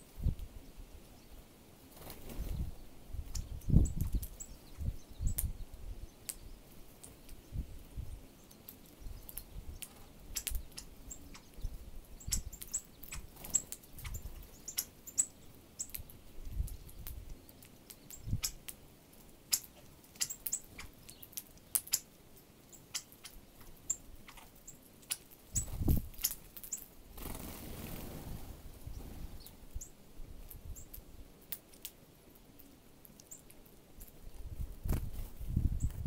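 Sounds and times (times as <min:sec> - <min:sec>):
bird wingbeats flutter: 0:01.9 - 0:02.7, 0:25.1 - 0:29.6, 0:34.6 - 0:36.0
birds pecking at seed: 0:03.2 - 0:07.5, 0:08.2 - 0:36.0
high bird chip calls: 0:08.3 - 0:18.7, 0:19.5 - 0:26.9.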